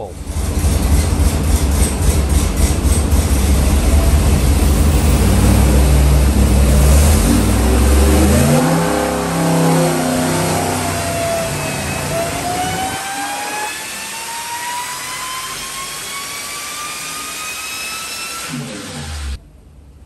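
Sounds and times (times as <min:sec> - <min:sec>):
engine rumbling under load: 0:00.0 - 0:13.0
supercharger whine: 0:00.0 - 0:20.0.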